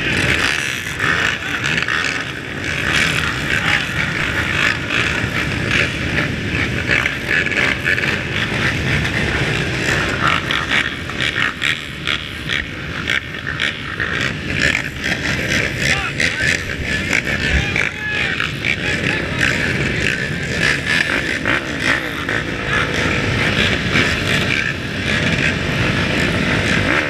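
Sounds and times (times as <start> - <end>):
atv engines running: 0.0 - 27.0.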